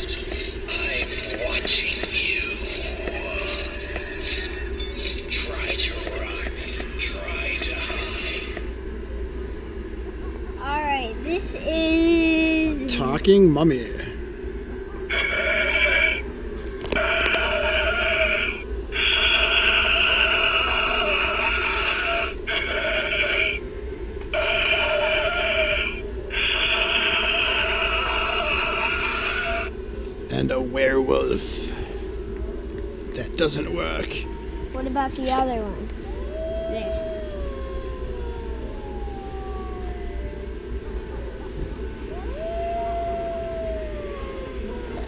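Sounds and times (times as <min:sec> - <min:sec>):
recorded wolf howl: 0:17.0 - 0:23.6, 0:24.3 - 0:29.8, 0:35.9 - 0:45.0.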